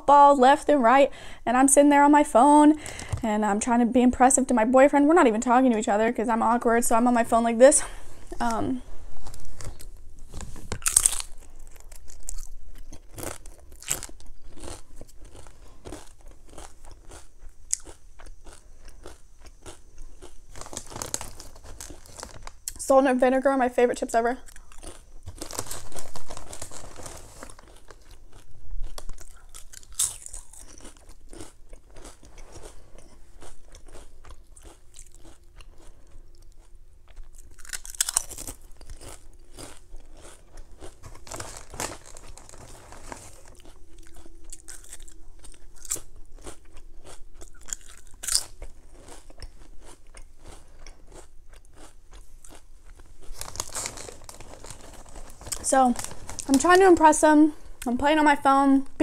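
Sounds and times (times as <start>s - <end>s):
chewing crunchy potato chips: 7.8s - 22.8s, 24.4s - 57.0s
chip bag rustling: 20.5s - 22.6s, 24.8s - 31.4s, 37.4s - 45.1s, 52.4s - 56.8s.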